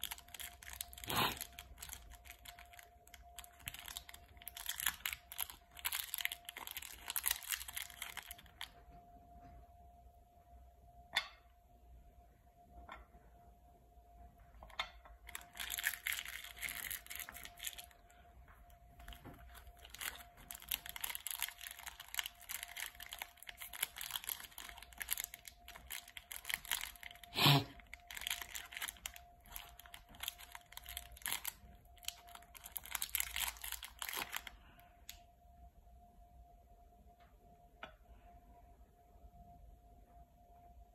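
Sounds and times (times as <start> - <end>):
plastic wrapper crinkling and tearing: 0.0 - 8.8, 15.2 - 35.2
faint steady hum: 0.0 - 40.9.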